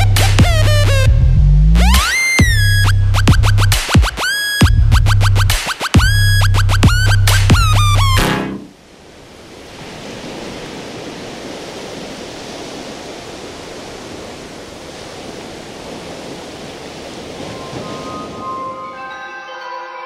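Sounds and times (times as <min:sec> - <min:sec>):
waves breaking on beach: 0:08.7 - 0:19.1
chiming music notes: 0:17.5 - 0:20.0.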